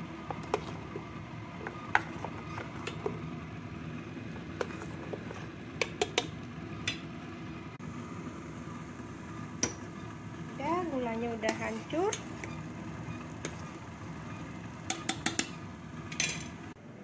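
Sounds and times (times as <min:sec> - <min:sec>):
metal spoon stirring thick mixture: 0:00.2 - 0:03.3, 0:04.3 - 0:06.3, 0:11.4 - 0:15.5.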